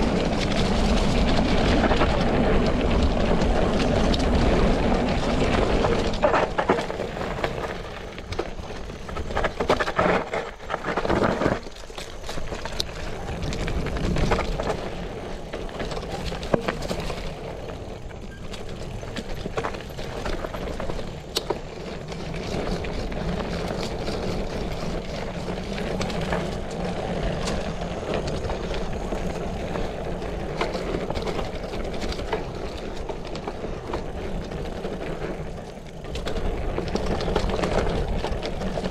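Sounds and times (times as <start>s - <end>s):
bicycle tyres on dirt: 0.0s - 38.9s
bike rattling and knocking: 0.0s - 38.9s.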